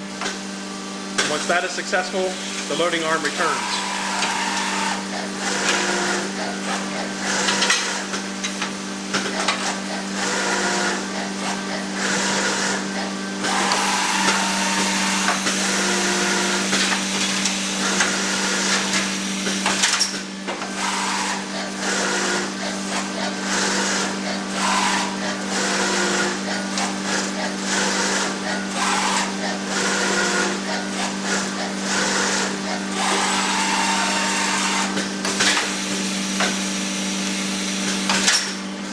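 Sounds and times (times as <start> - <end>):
machine running: 0.0 - 38.9
short machine whines: 13.4 - 16.7.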